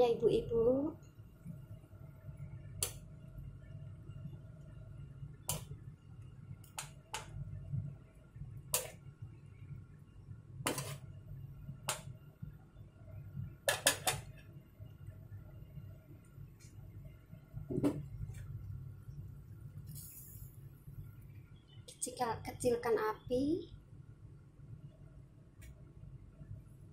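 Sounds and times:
pot boiling on gas burner: 0:00.0 - 0:21.2.

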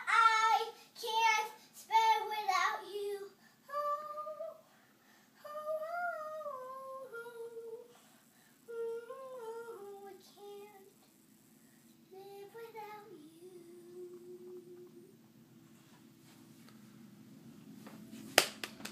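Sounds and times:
child singing: 0:00.0 - 0:04.7, 0:05.4 - 0:08.0, 0:08.7 - 0:11.0, 0:12.1 - 0:15.1.

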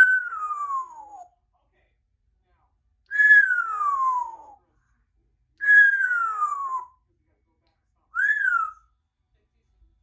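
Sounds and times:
parrot whistling: 0:00.0 - 0:01.3, 0:03.1 - 0:04.6, 0:05.6 - 0:07.0, 0:08.2 - 0:08.8.

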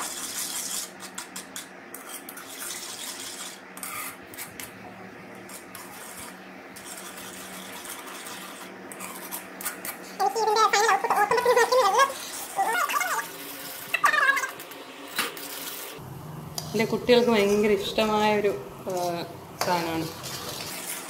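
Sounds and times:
metal ladle scraping a pan: 0:00.0 - 0:04.8, 0:16.5 - 0:21.0.

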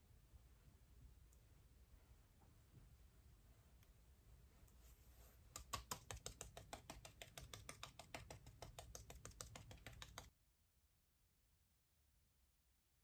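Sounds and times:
makeup puff patting face: 0:05.4 - 0:10.3.

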